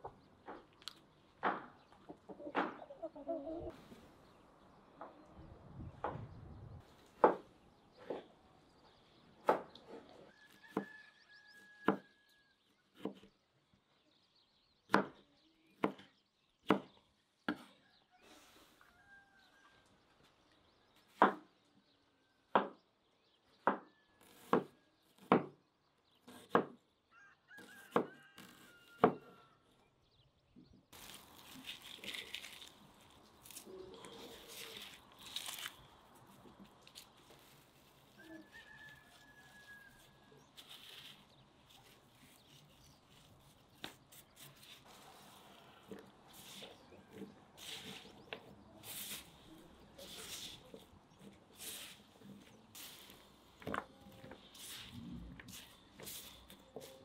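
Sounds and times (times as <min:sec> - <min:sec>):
knife chopping on wooden board: 0:22.5 - 0:22.8, 0:23.6 - 0:25.6, 0:26.3 - 0:26.8, 0:27.8 - 0:29.3
rustling vegetables: 0:30.9 - 0:57.0.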